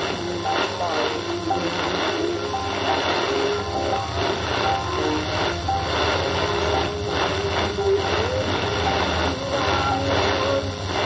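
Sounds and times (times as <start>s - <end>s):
faint wavering music: 0.0s - 11.0s
radio static and hiss: 0.0s - 11.0s
steady hum: 0.0s - 11.0s.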